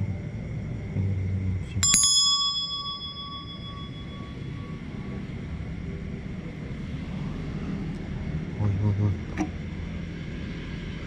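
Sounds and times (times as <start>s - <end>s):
hand bell ringing: 1.8s - 4.8s.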